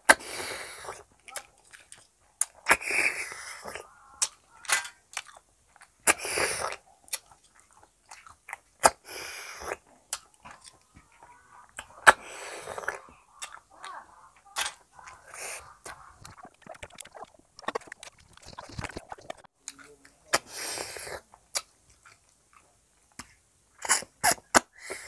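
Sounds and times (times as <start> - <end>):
wet slurping and sucking: 0.0 - 4.7, 6.0 - 8.2, 8.8 - 19.5, 20.3 - 21.2
chewing and lip smacks: 0.8 - 20.5, 21.5 - 24.7
sharp wet clicks: 0.8 - 20.5, 21.5 - 24.8.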